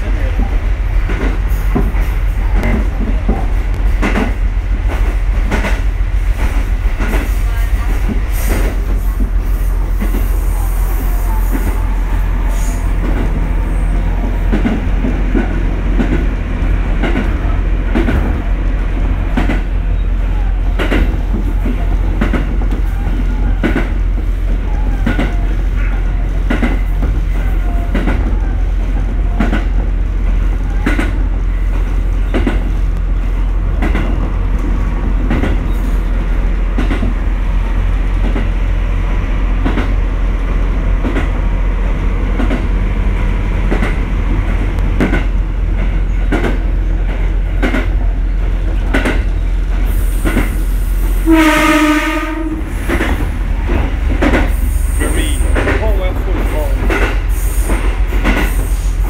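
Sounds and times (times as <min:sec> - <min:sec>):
train rumbling: 0:00.0 - 0:59.0
wheels clacking over rail joints: 0:43.6 - 0:49.4, 0:52.4 - 0:59.0
train horn: 0:51.2 - 0:52.8.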